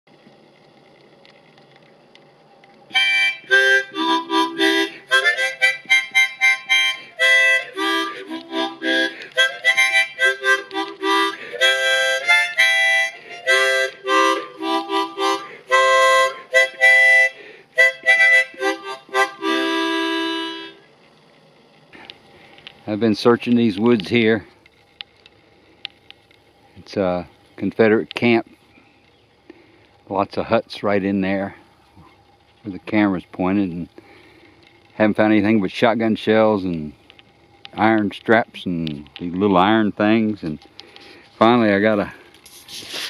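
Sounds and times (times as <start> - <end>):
harmonica tune: 2.9 - 20.9.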